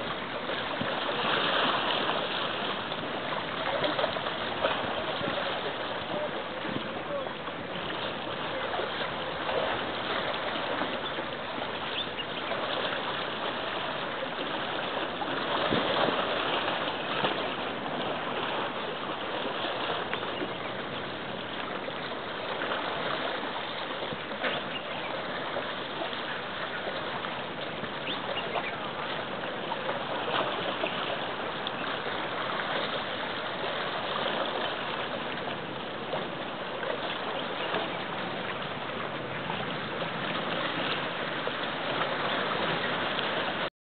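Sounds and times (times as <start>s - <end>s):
sea water rushing: 0.0s - 43.7s
small water splashes: 0.0s - 43.7s.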